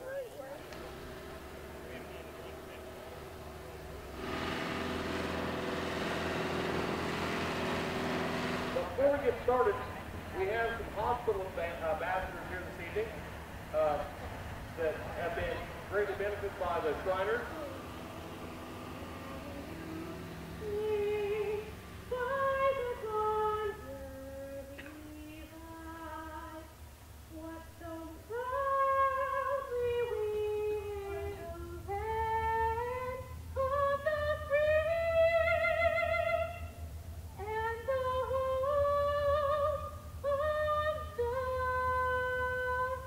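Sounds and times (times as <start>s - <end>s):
woman singing into microphone: 19.2s - 26.7s, 27.3s - 36.7s, 37.4s - 43.0s.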